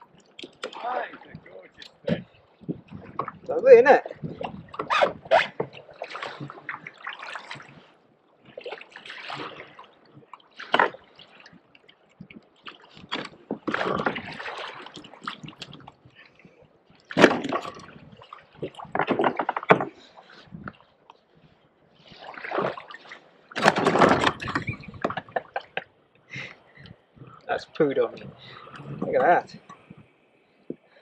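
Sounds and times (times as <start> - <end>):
water slapping against kayak hull: 0.0 - 20.9, 22.0 - 25.9.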